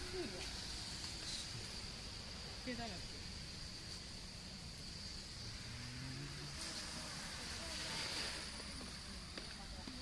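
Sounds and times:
high-pitched insect drone: 0.0 - 10.0
faint distant voices: 5.9 - 10.0.

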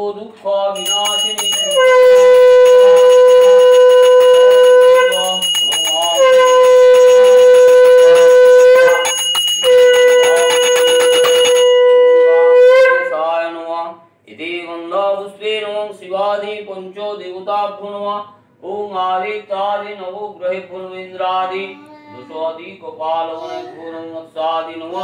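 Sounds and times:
small handbell ringing: 0.8 - 12.1
conch shell blasts: 0.8 - 13.2.

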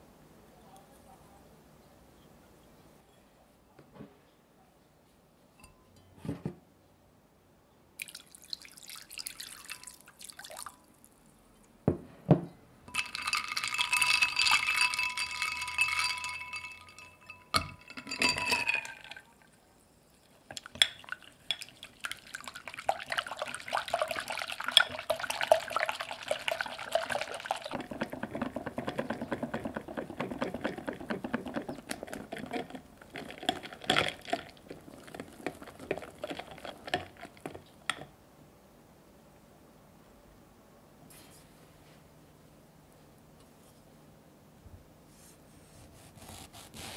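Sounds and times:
water pouring: 8.0 - 10.9, 12.9 - 19.5, 20.5 - 37.6
whisk ticking against glass bowl: 12.9 - 19.2, 20.6 - 33.8
ice cubes clinking in glass: 12.9 - 19.4, 20.7 - 27.9, 29.0 - 38.0.

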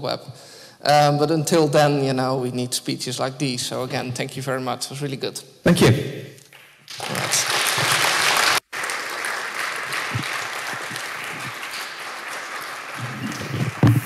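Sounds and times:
audience applauding: 6.9 - 14.0.

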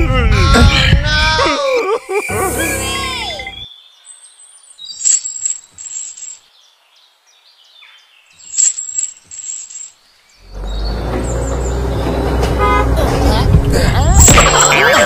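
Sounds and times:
bird chirping: 2.0 - 12.6.

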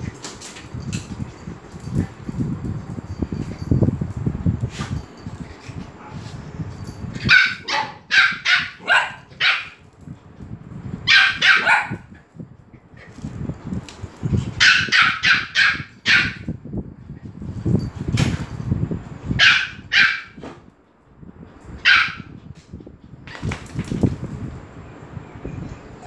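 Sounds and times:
small dogs barking: 7.2 - 9.8, 11.1 - 12.1, 14.6 - 16.4, 19.4 - 20.4, 21.8 - 22.3.

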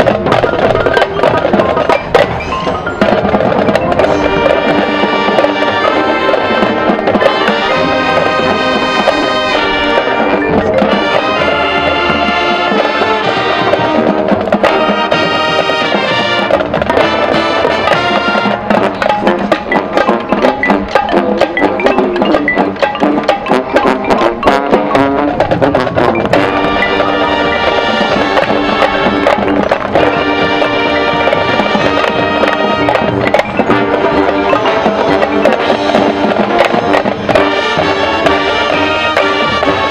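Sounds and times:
marching drums: 0.0 - 39.9
brass horns playing chords: 3.9 - 21.0, 23.0 - 39.9.

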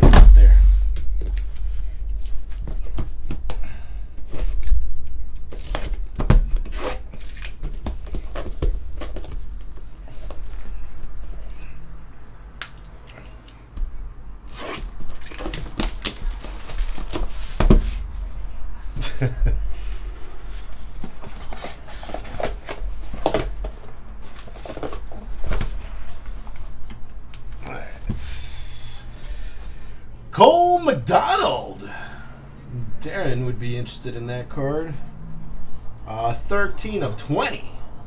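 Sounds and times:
plastic wrap tearing and crinkling: 14.5 - 17.6.

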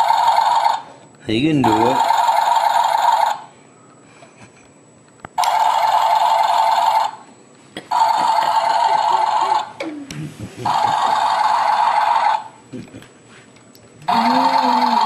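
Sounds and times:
toy tractor electronic engine sound: 1.7 - 3.4, 14.1 - 15.0.

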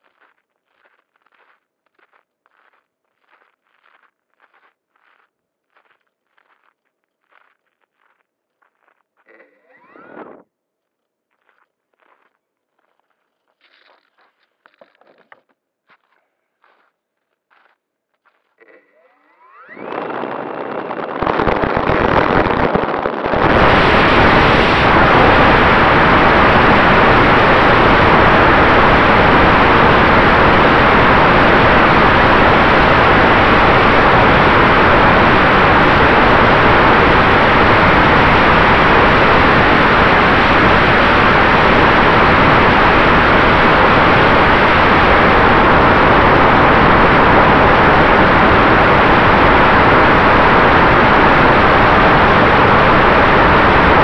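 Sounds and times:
faint steady whine: 0.0 - 54.0
wind noise: 9.3 - 10.5, 18.6 - 54.0.

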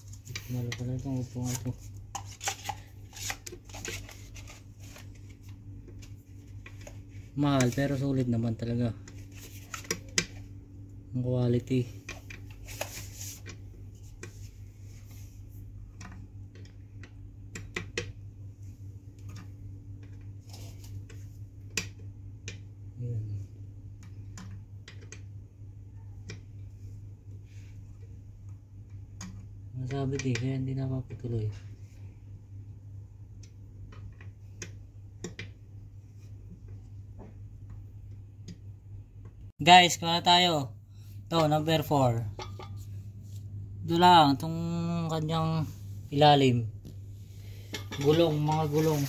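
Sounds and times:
steady low hum: 0.0 - 49.0
faint clicks and taps: 20.9 - 22.7, 33.3 - 35.6.

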